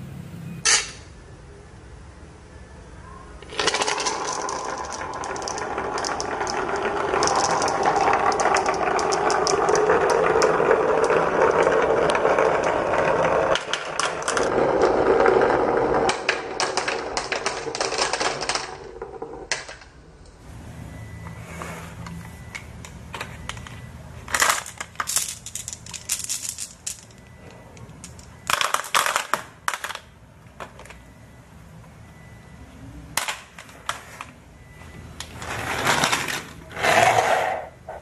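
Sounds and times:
marbles clicking together: 3.4s - 19.8s
marbles rolling on wooden tracks: 3.4s - 20.0s, 23.4s - 30.1s, 35.2s - 38.0s.

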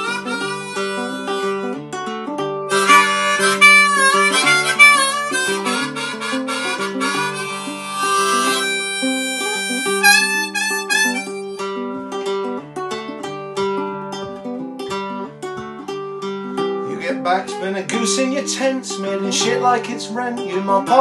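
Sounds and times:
harmonica playing: 0.0s - 1.8s, 2.6s - 12.1s, 16.4s - 21.0s
strummed ukulele: 0.0s - 21.0s.

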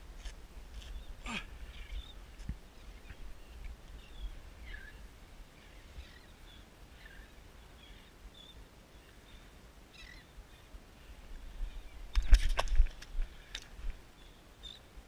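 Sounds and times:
faint bird chirps: 0.9s - 2.2s, 2.9s - 10.7s, 14.2s - 14.9s.

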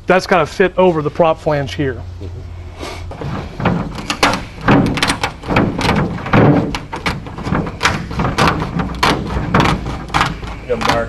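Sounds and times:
snips cutting fiberglass: 3.9s - 11.0s.

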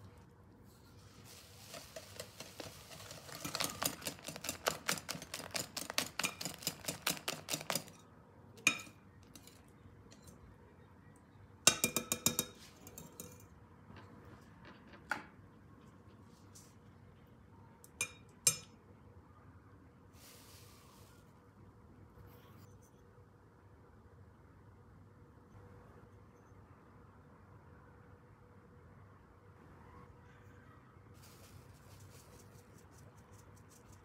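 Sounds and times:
whisk clinking in glass bowl: 1.6s - 8.0s, 8.6s - 9.6s.

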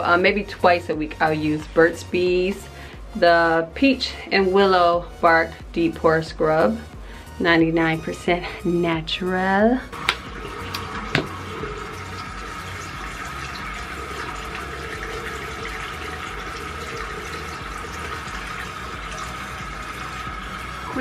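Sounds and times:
tap water running: 0.0s - 3.8s, 9.9s - 21.0s.

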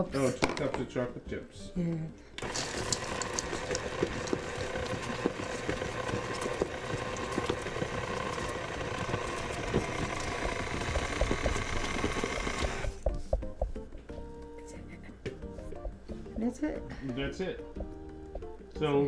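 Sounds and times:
stand mixer motor running: 2.4s - 13.1s.

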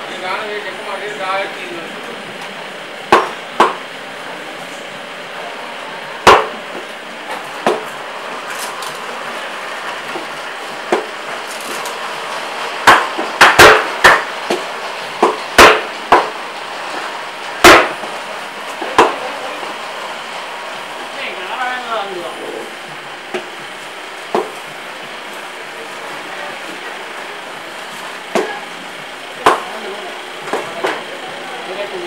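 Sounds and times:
steady background noise: 0.0s - 32.0s
cleaver chopping on wooden block: 3.1s - 3.8s, 6.3s - 6.6s, 12.9s - 14.6s.

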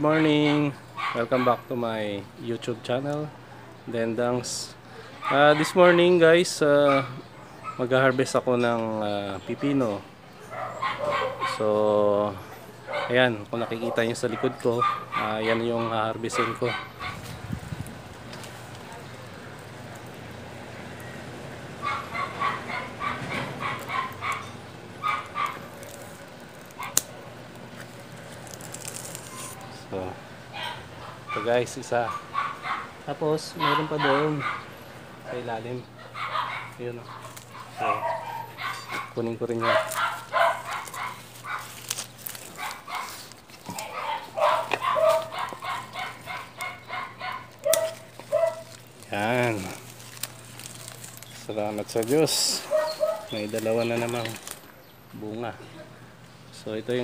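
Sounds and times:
dog yapping: 0.0s - 1.7s, 5.2s - 6.1s, 6.7s - 7.9s, 10.4s - 11.7s, 12.8s - 17.4s, 21.8s - 27.2s, 30.5s - 48.9s, 52.4s - 54.4s.

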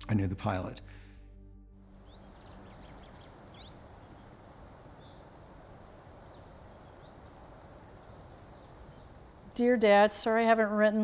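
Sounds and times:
bird chirps: 1.8s - 10.0s
low background hiss: 1.9s - 11.0s.

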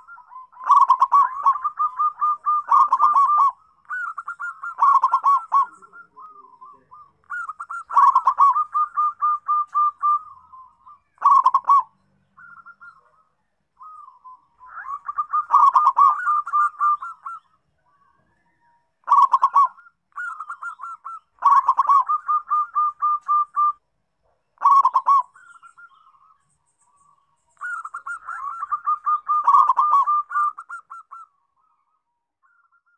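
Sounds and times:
dove cooing: 0.0s - 23.8s, 24.5s - 26.4s, 27.6s - 32.9s.

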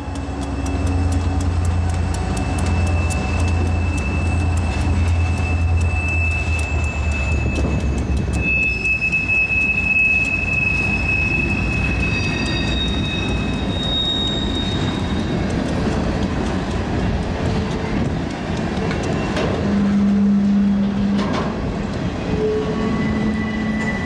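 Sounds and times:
diesel locomotives rumbling: 0.0s - 24.0s
wheels clicking over rails: 0.0s - 24.0s
high-pitched wheel squeal: 0.5s - 15.5s, 22.2s - 24.0s.

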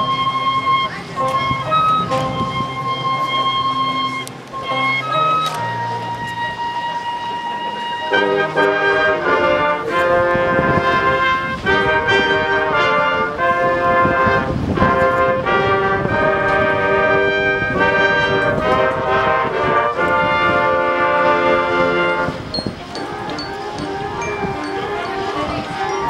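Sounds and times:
marching band brass chords: 0.0s - 26.0s.

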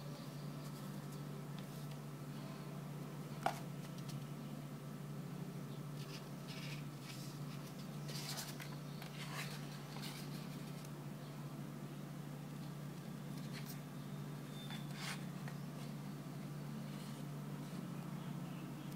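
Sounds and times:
paper rustling and scraping: 6.0s - 10.9s, 14.6s - 16.0s.

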